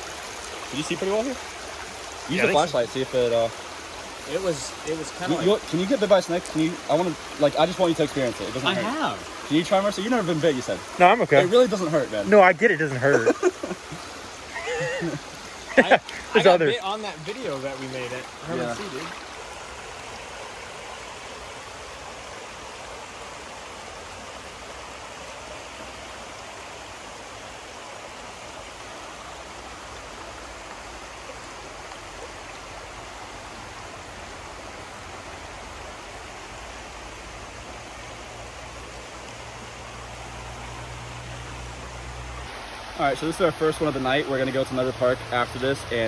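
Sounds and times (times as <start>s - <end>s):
river water rushing over riffles: 0.0s - 46.0s.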